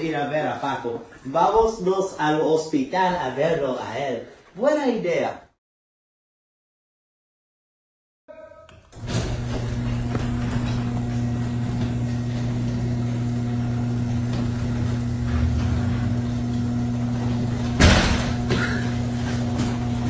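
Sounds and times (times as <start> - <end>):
garage door opener motor hum: 8.7 - 20.0.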